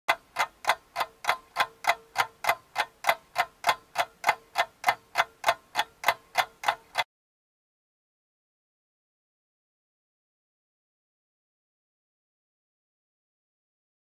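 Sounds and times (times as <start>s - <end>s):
sharp ticks: 0.1s - 7.1s.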